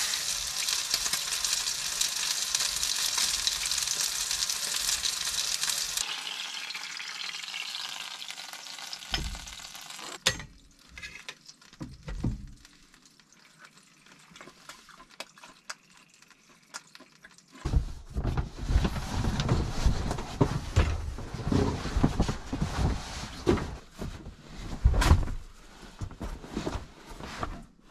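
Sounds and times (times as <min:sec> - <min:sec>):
steak sizzling in a frying pan: 0:00.0 - 0:13.3
foam mat rustling and thumping: 0:17.6 - 0:27.6.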